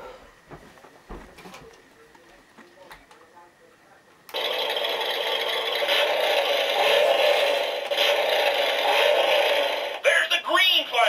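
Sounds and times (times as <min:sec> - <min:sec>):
slot cars whirring and rattling: 0:04.3 - 0:10.0.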